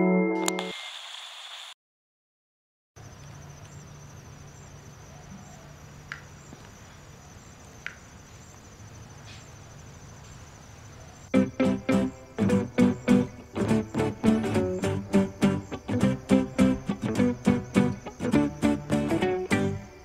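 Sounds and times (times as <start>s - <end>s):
music: 0.0s - 0.7s, 11.3s - 20.0s.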